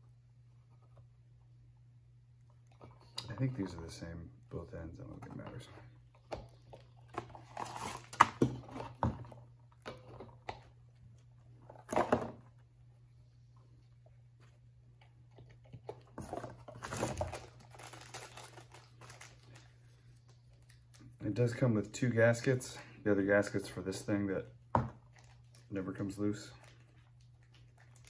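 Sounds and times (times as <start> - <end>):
paper and cardboard rustling: 7.0 - 9.0, 15.8 - 19.8.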